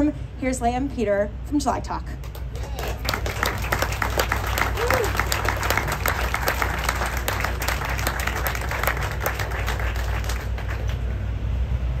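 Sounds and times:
crowd clapping: 0:02.2 - 0:11.2.

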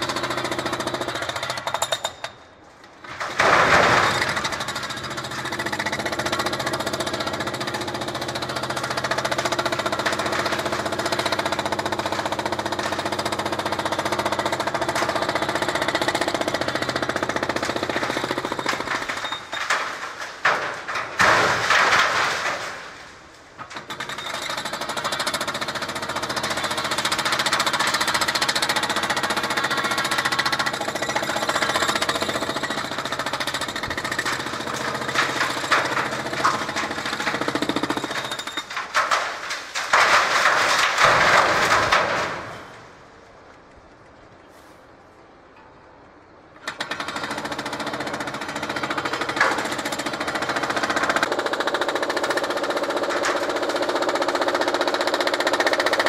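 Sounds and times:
hydraulic breaker hammering concrete: 0:03.5 - 0:19.9, 0:23.8 - 0:42.4.

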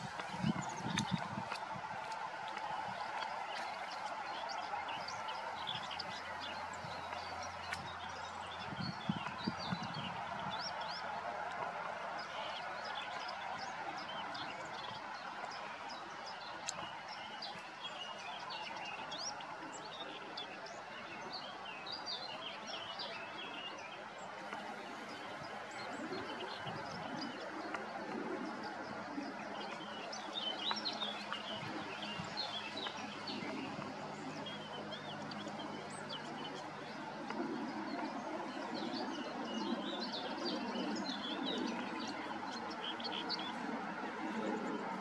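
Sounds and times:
warbler singing: 0:24.9 - 0:44.8.

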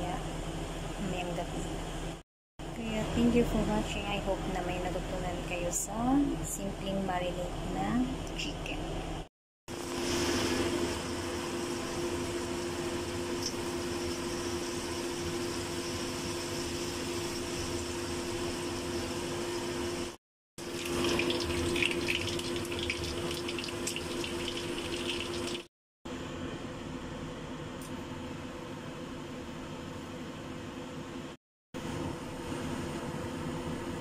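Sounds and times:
lidded pot steaming hiss: 0:09.7 - 0:13.1
chicken frying in oil: 0:09.7 - 0:25.7
crackling oil spatter: 0:20.6 - 0:25.7.

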